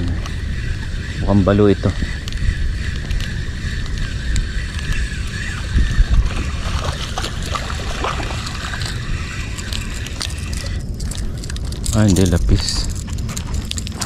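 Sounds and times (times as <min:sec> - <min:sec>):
fishing reel whirring and clicking: 0:00.0 - 0:14.0
wind rumble on microphone: 0:00.0 - 0:14.0.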